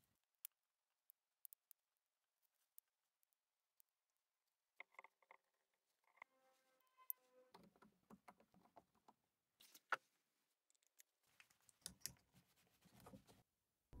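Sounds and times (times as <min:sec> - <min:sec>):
small parts clicking and tapping: 0:00.0 - 0:06.3, 0:10.6 - 0:12.3.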